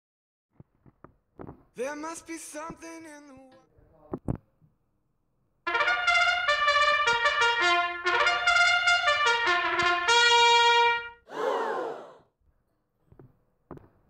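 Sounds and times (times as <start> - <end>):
trumpet tune: 5.6 - 11.2.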